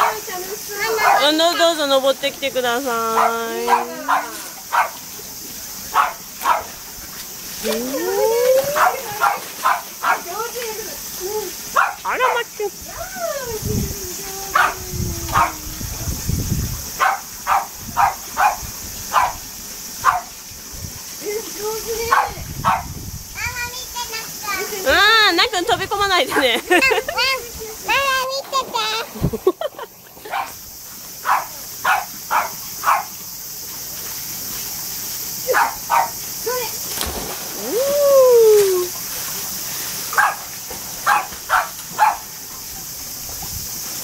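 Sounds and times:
dog barking: 0.0s - 0.3s, 0.9s - 1.3s, 3.2s - 5.0s, 5.9s - 6.7s, 8.8s - 10.3s, 11.8s - 12.4s, 14.5s - 15.6s, 17.0s - 19.4s, 20.0s - 20.3s, 22.1s - 22.9s, 30.3s - 30.6s, 31.2s - 33.1s, 35.5s - 36.2s, 40.2s - 42.3s
dog splashing in water: 5.9s - 10.8s, 33.8s - 37.8s, 38.5s - 42.4s.

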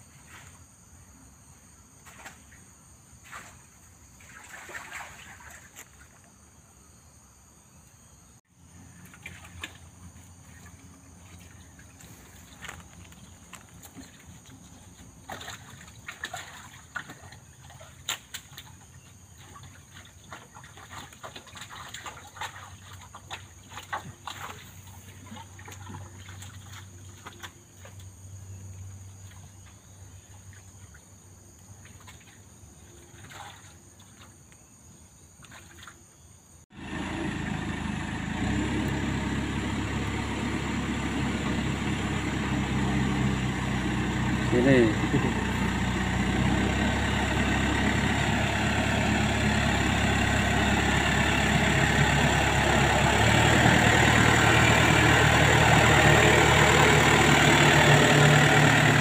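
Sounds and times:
diesel engine running loudly: 36.7s - 59.0s.

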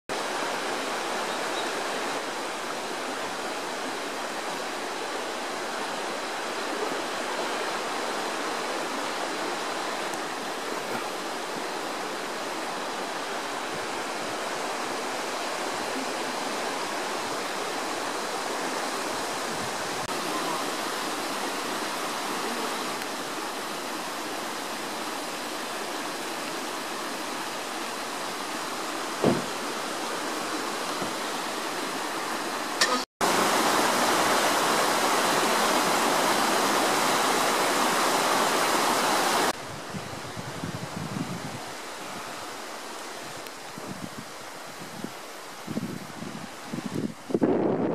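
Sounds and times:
stream rushing over rocks: 0.1s - 47.9s
short thump: 29.2s - 29.5s.

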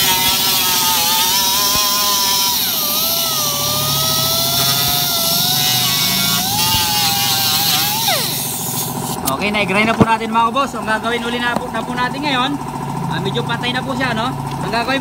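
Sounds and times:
electric grinder grinding plastic: 0.0s - 9.4s.

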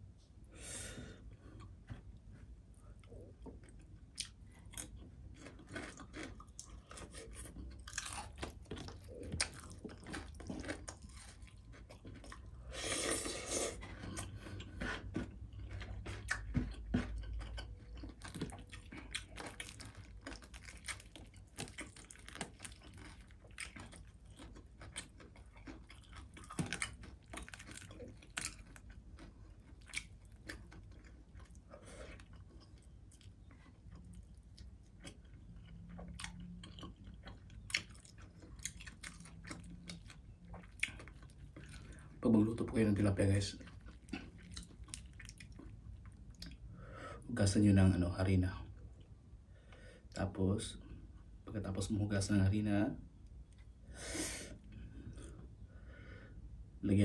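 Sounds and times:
chewing and crunching fried fish: 2.8s - 46.7s.

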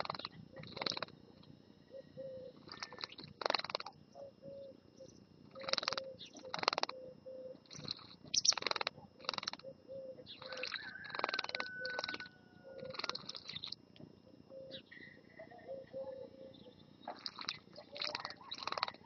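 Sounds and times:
bird splashing and fluttering: 12.8s - 13.5s, 17.2s - 19.0s.

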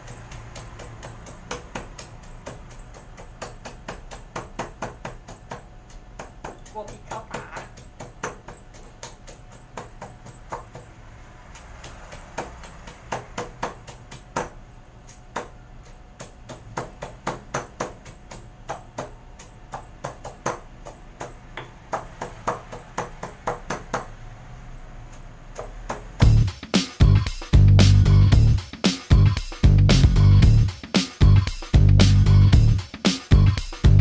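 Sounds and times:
stone pestle pounding in mortar: 0.0s - 24.2s.

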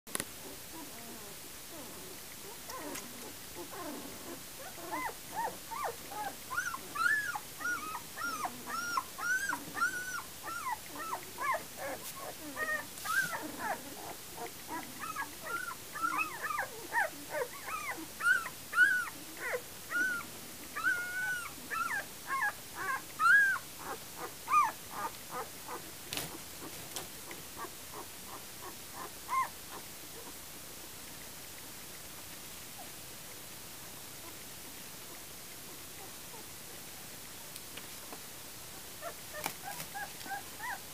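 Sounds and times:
puppies squeaking and whimpering: 2.7s - 25.8s, 27.6s - 29.5s, 39.0s - 40.8s.

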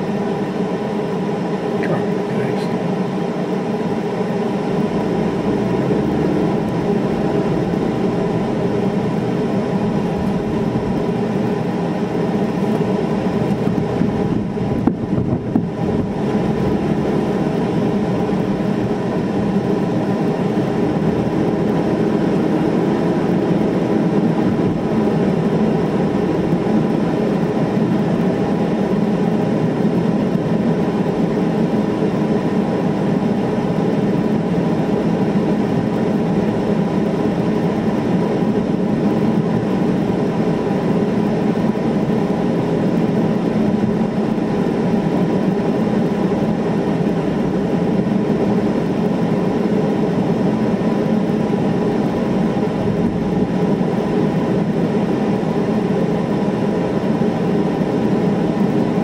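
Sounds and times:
car engine hum: 0.0s - 59.0s
tyre road noise: 4.7s - 27.6s.

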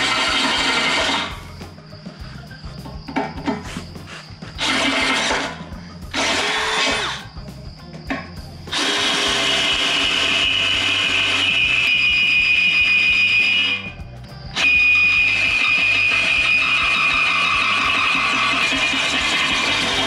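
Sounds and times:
cordless drill boring into steel: 0.0s - 1.3s, 4.6s - 7.2s, 8.7s - 13.8s, 14.6s - 20.0s.

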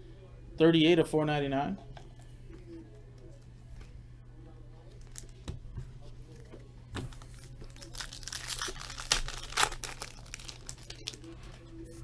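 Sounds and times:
foil wrapper tearing and crinkling: 7.1s - 11.3s.

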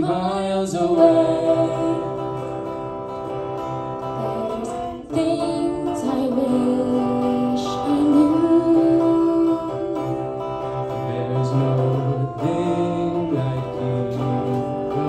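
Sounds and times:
electric guitar: 0.0s - 15.0s
woman singing: 1.0s - 2.4s, 4.1s - 10.4s.

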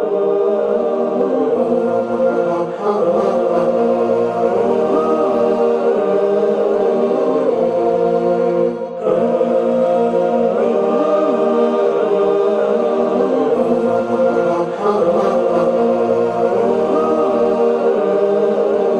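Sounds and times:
voices chanting in harmony: 0.0s - 18.9s.

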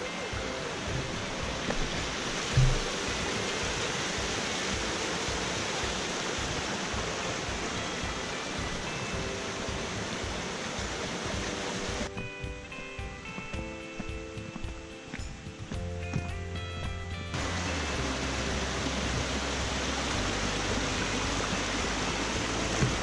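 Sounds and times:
background music: 0.0s - 23.0s
stream running over rocks: 0.0s - 23.0s
low thump: 0.9s - 3.0s.

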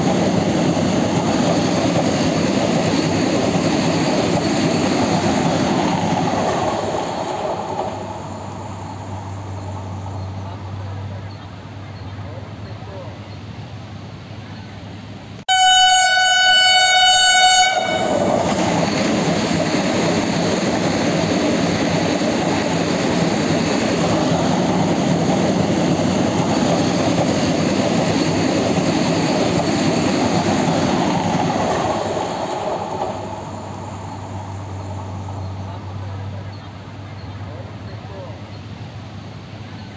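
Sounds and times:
train rushing past: 0.0s - 11.8s, 12.6s - 39.9s
train horn: 15.5s - 18.3s.

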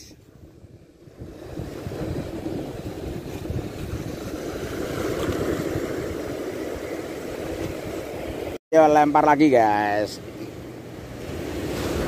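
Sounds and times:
wind rumbling on microphone: 0.0s - 8.6s.

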